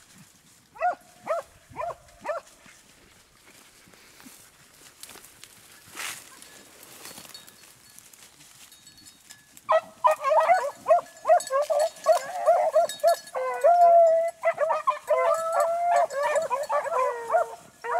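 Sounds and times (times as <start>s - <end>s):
hounds baying: 0.8s - 2.8s, 9.7s - 17.9s.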